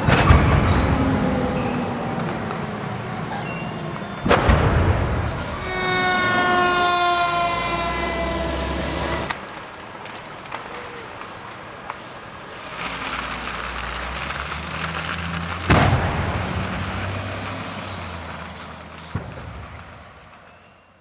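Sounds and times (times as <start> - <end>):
low traffic rumble: 0.0 - 20.9
fire rushing: 0.0 - 21.0
sharp bang: 3.2 - 6.0.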